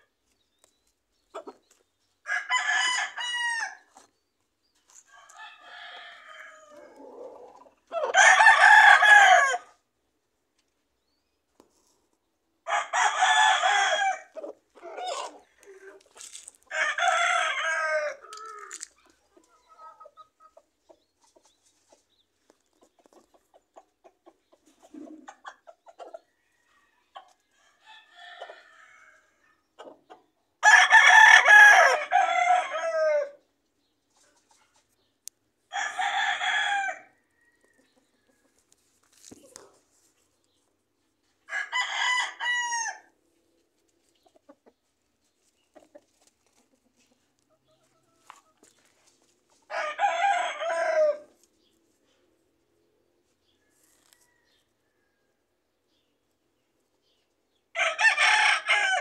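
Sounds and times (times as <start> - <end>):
chickens clucking and calling: 0.0 - 3.0, 3.9 - 9.5, 11.5 - 30.7, 31.9 - 42.2, 43.1 - 54.8
roosters crowing: 2.2 - 4.1, 4.9 - 9.8, 12.6 - 19.0, 26.2 - 29.5, 30.6 - 33.4, 35.7 - 38.7, 41.4 - 43.2, 49.6 - 51.4, 57.8 - 59.0.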